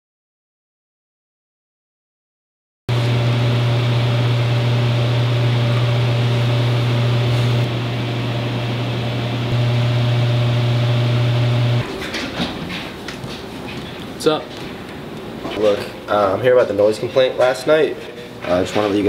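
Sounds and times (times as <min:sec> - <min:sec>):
loud low hum with hiss: 0:02.9 - 0:11.9.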